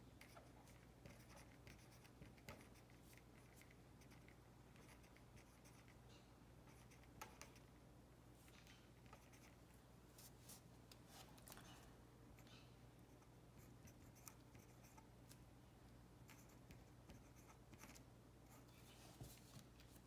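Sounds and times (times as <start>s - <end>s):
pen scratching on paper: 0.2s - 6.0s, 6.7s - 7.6s, 9.1s - 9.6s, 16.3s - 18.7s.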